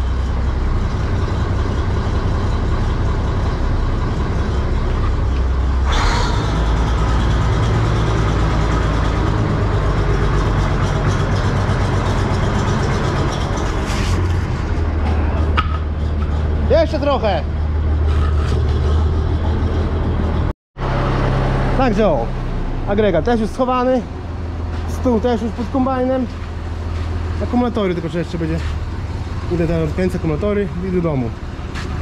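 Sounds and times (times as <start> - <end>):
combine harvester engine running: 0.0 - 32.0.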